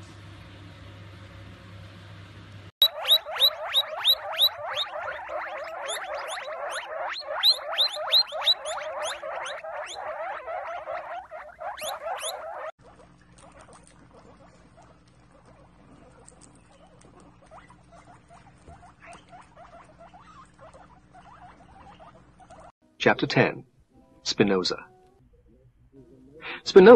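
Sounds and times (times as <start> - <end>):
guinea pigs nibbling greens: 2.8 - 22.7
guinea pigs squealing: 2.8 - 22.8.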